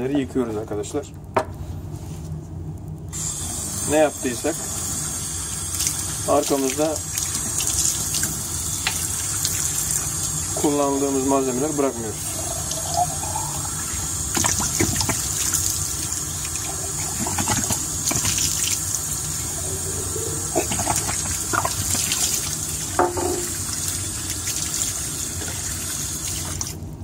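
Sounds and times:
tap water splashing in sink: 5.7s - 10.8s, 14.3s - 19.0s, 20.5s - 25.7s
bottle knocks: 23.0s - 23.5s.

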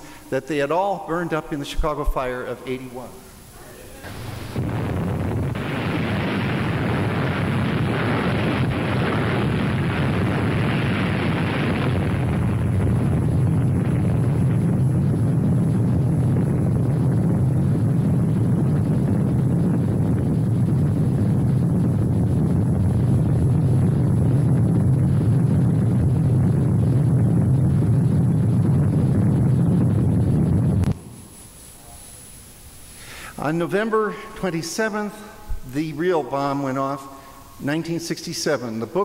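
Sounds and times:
explosion roar with hiss: 3.0s - 34.4s
deep rumble: 4.1s - 31.0s.

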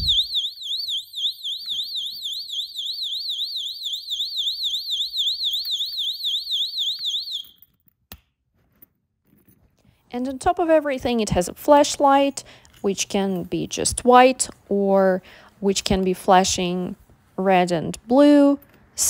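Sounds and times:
warbling alarm siren: 0.0s - 7.6s.

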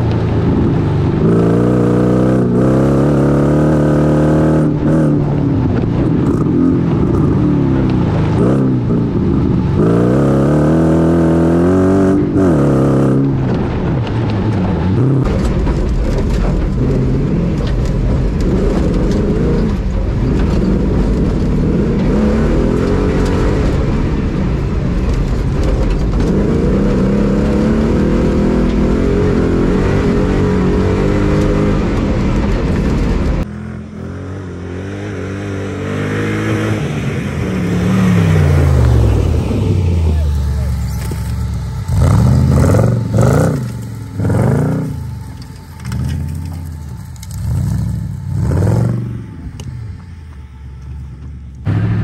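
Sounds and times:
buggy engine revving: 0.0s - 52.0s
heavy low rumble in cabin: 38.9s - 52.0s.

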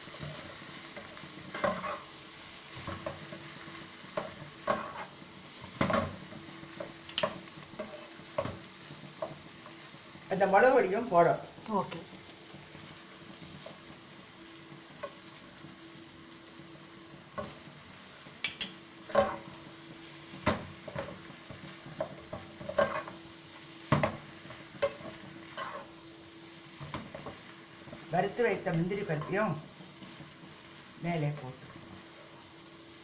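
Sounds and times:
faint sizzle: 0.0s - 33.0s
spoon scraping and tapping pan: 1.0s - 2.0s, 18.4s - 19.5s, 20.4s - 23.2s, 23.9s - 25.9s.

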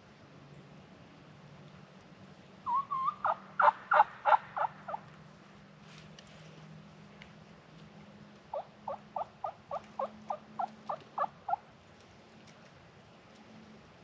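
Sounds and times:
turkey yelps: 2.7s - 5.0s.

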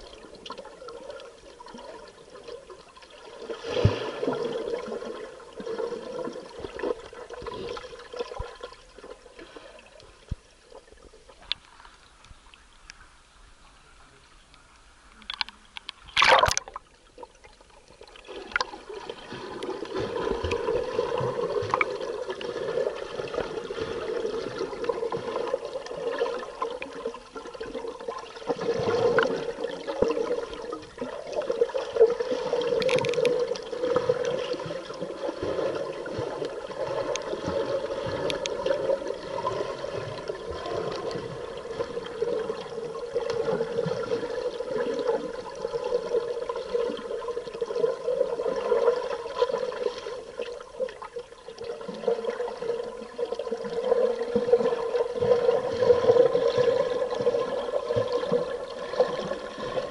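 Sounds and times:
muffled underwater rush: 0.0s - 59.9s
faint clicks: 11.3s - 13.1s, 14.4s - 16.8s, 32.8s - 33.4s, 37.1s - 37.3s, 38.2s - 38.6s
loud splash: 16.2s - 16.8s.

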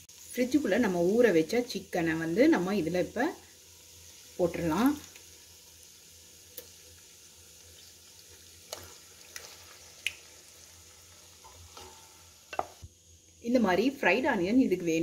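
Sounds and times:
low steady sizzle: 0.0s - 15.0s.

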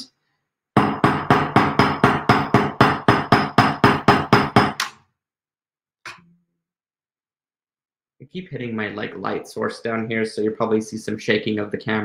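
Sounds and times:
hammer striking metal on anvil: 0.8s - 4.9s.

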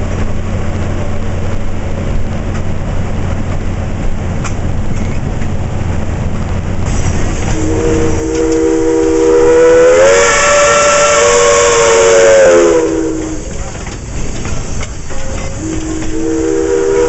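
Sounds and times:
locomotive rumbling on track: 0.0s - 17.0s
steam hissing: 6.6s - 17.0s
steam locomotive whistle: 7.3s - 13.7s, 15.1s - 17.0s.

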